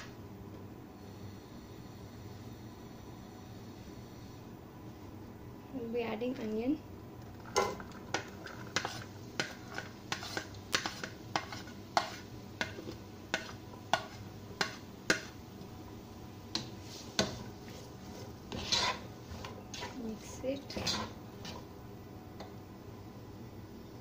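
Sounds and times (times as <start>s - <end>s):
spatula scraping a plate: 7.6s - 15.4s, 16.5s - 21.7s
spatula stirring onions: 7.6s - 21.8s.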